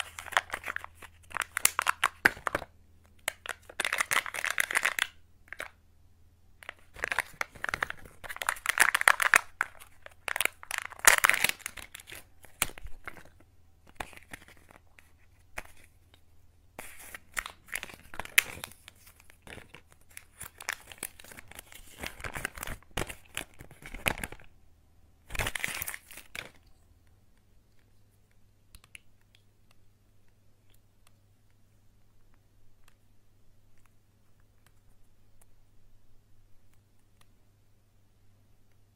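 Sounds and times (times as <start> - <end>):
foil and plastic wrapper tearing: 6.9 - 13.3, 25.3 - 26.6.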